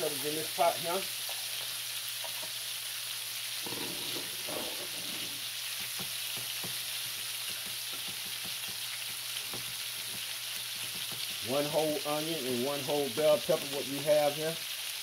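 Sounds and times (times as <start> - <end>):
vegetables sizzling in a skillet: 0.0 - 15.0
wooden spatula scraping a pan: 3.6 - 5.5.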